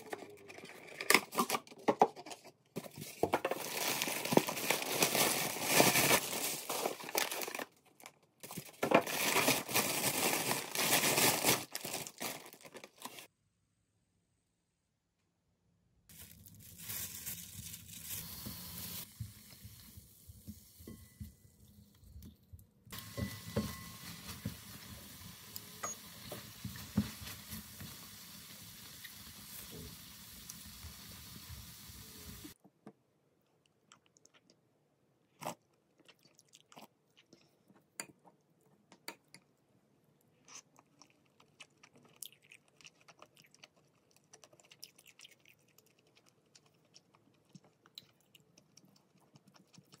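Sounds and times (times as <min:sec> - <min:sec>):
meat sizzling in a frying pan: 0:23.0 - 0:32.6
soft chewing: 0:33.4 - 0:50.0.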